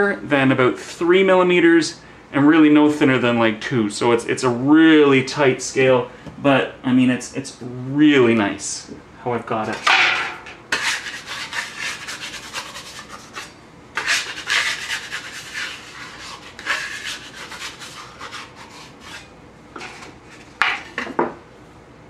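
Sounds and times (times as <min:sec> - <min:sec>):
metal scraper on wooden counter: 0:10.3 - 0:20.0.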